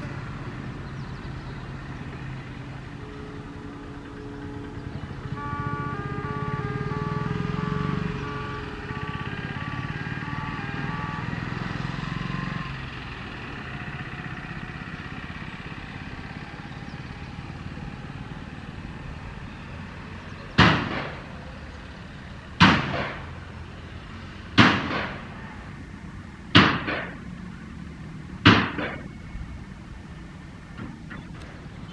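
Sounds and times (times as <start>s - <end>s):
diesel train engine rumble: 0.0s - 31.9s
sharp bangs: 20.5s - 21.5s, 22.6s - 23.7s, 24.5s - 25.5s, 26.5s - 27.8s, 28.4s - 29.3s.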